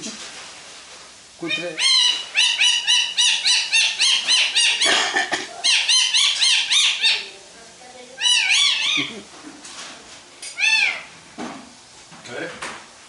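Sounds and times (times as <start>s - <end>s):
parakeet mimicking puppy yelps: 1.4s - 7.3s, 8.2s - 9.2s, 10.5s - 11.1s.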